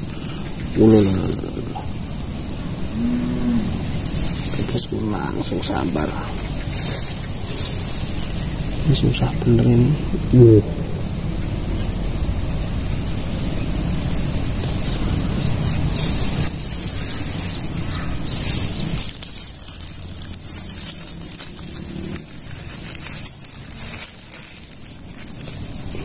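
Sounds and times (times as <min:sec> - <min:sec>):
low rumble: 0:00.0 - 0:26.0
steady high hiss: 0:00.0 - 0:26.0
faint rustling clicks: 0:15.9 - 0:26.0.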